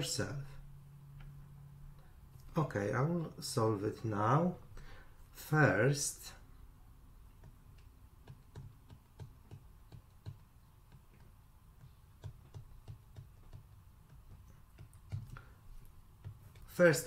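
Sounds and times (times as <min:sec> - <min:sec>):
stylus tapping on tablet screen: 0:07.3 - 0:16.7.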